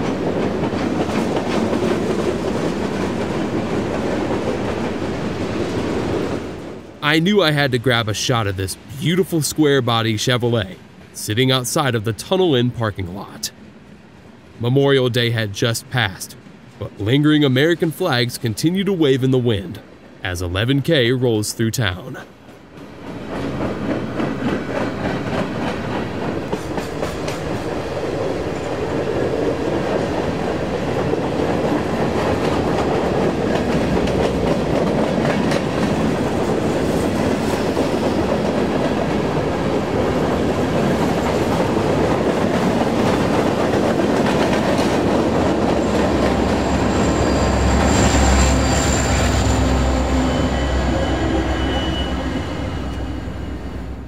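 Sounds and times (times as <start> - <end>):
train wheels rumbling on rail: 0.0 - 14.6, 21.9 - 54.0
diesel locomotive engine rumble: 22.0 - 54.0.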